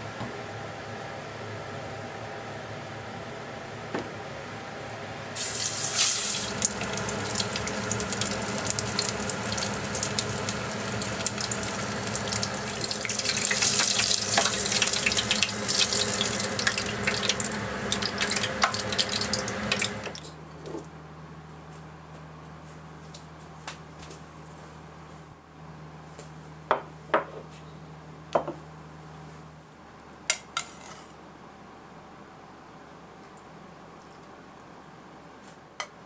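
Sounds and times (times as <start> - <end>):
deep-frying sizzle with crackling pops: 5.4 - 20.2.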